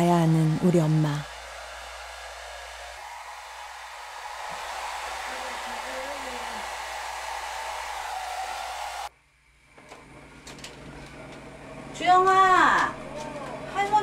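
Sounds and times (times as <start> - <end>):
hair dryer blowing: 0.0 - 9.1.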